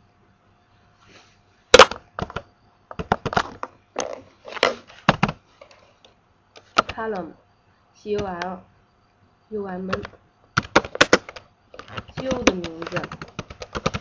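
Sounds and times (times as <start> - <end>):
keyboard keystrokes: 9.9 - 14.0.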